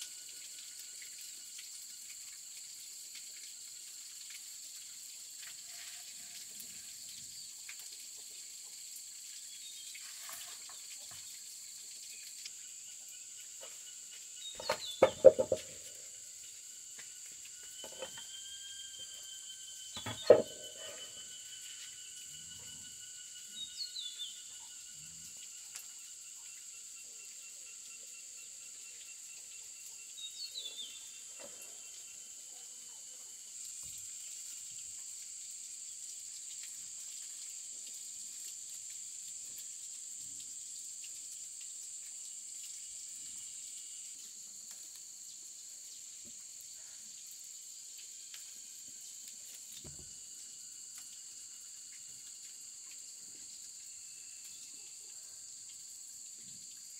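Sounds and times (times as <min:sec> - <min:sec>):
insects droning: 0:00.0 - 0:56.9
bird calls: 0:14.5 - 0:15.9, 0:19.9 - 0:21.2.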